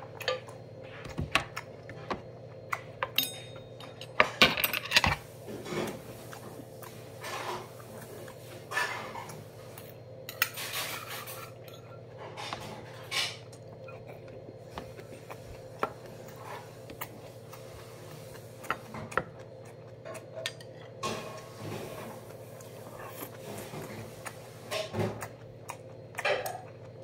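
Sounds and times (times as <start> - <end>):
faint steady hum: 0.0 - 27.0
metal chopsticks clinking on bowls: 3.2 - 4.9.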